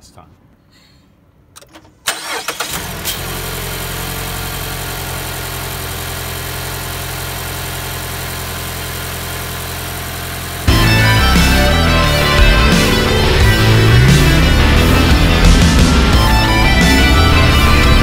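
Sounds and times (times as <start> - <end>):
car starter cranking: 1.6 - 4.7
car engine idling: 2.2 - 18.0.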